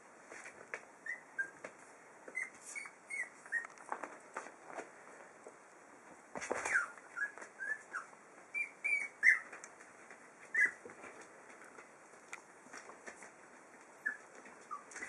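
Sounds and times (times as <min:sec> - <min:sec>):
puppies squeaking and whimpering: 0:01.0 - 0:01.6, 0:02.3 - 0:03.8, 0:06.6 - 0:09.6, 0:10.4 - 0:10.9, 0:14.0 - 0:15.0
rustle and light knocks: 0:03.5 - 0:07.6, 0:09.4 - 0:15.0.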